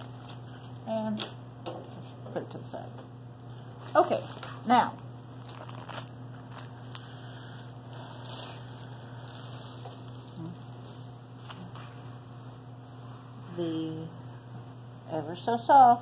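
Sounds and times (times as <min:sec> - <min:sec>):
steady low hum: 0:00.0 - 0:16.0
packaging sleeve rustling: 0:03.8 - 0:12.0.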